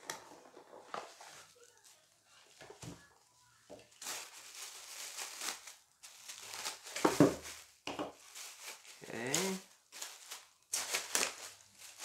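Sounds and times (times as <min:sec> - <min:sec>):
plastic bag crinkling: 0:03.2 - 0:12.0.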